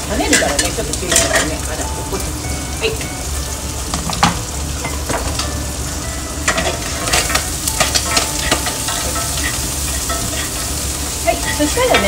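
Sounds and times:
food sizzling in hot oil: 0.0 - 12.0
metal tongs scraping pan: 0.2 - 1.8, 6.4 - 12.0.

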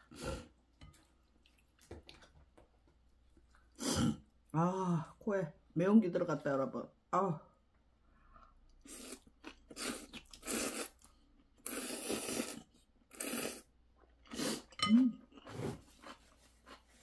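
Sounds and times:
noodles being slurped: 8.8 - 13.7.

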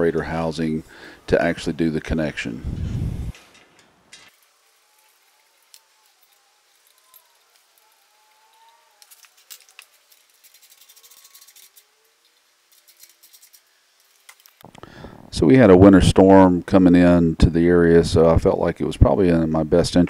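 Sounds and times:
metallic clicks of hand tool and screws: 3.3 - 11.8.

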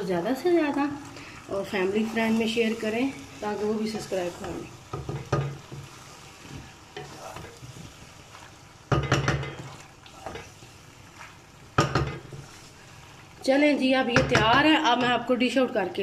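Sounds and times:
soft sizzle: 0.0 - 16.0
spatula scraping a pan: 1.7 - 13.4.

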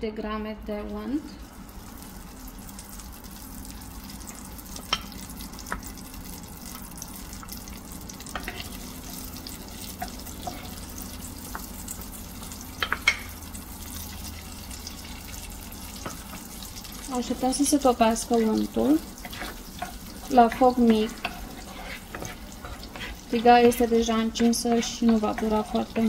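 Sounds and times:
butter sizzling in a frying pan: 0.8 - 26.0
wooden spatula tapping and scraping pan: 12.8 - 13.3, 19.2 - 26.0.

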